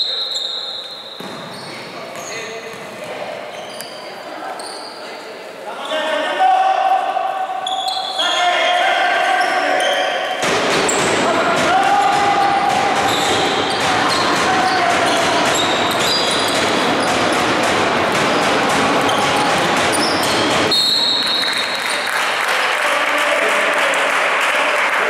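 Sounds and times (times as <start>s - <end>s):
sneakers squeaking: 0.0s - 5.2s, 7.5s - 22.1s
basketball bouncing: 1.2s - 3.0s, 10.4s - 21.4s
din of voices: 11.0s - 20.7s.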